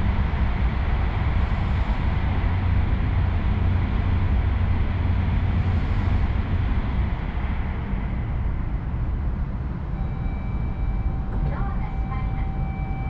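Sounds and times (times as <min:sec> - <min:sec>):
train cabin rumble: 0:10.6 - 0:13.0.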